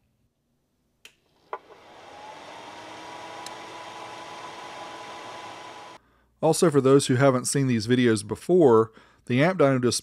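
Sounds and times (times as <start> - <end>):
cooling fan whirring: 1.6 - 6.0.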